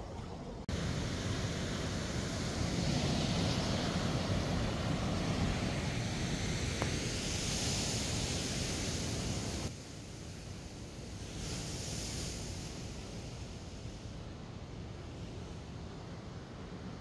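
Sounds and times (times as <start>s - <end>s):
surf washing against rocks: 0.7s - 14.2s.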